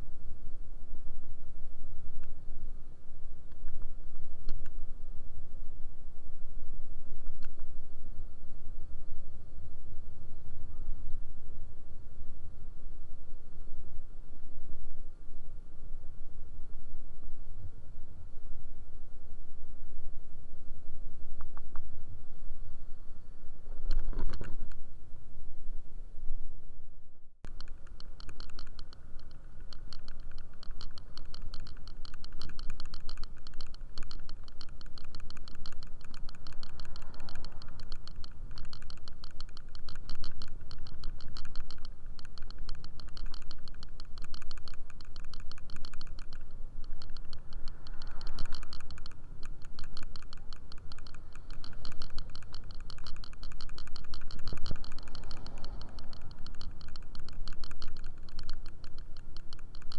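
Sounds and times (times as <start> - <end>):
wind rumble on camera: 0.0 - 59.9
rapid ticking rattle: 27.4 - 59.9.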